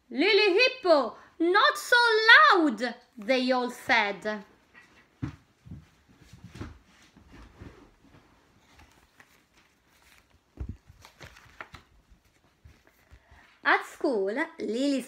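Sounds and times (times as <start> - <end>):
book rustling: 5.0 - 13.6.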